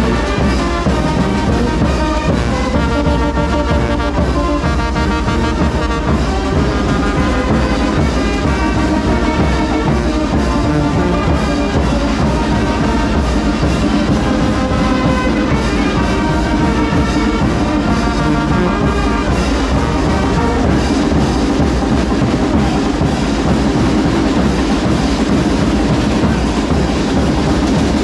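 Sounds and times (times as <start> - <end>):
brass band playing dance music: 0.0 - 28.0.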